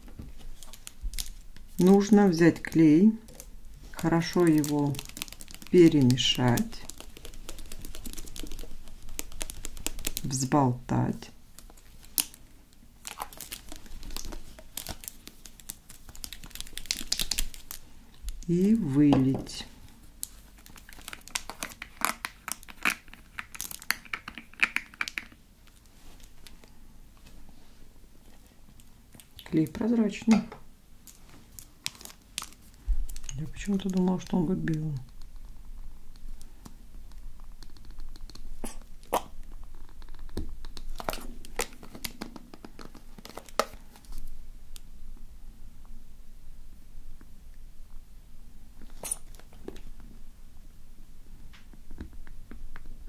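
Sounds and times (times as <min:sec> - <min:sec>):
crinkly plastic crackles: 0:00.0 - 0:18.9, 0:19.5 - 0:27.3, 0:31.0 - 0:44.8
low steady background noise: 0:00.0 - 0:53.0
nails clicking on plastic bottle: 0:03.3 - 0:10.4
glue squeezed from plastic bottle: 0:48.9 - 0:49.5.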